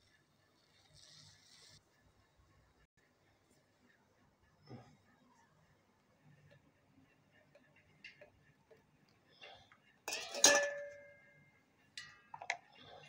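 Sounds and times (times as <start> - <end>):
kitchenware clinking: 10.1 - 13.0.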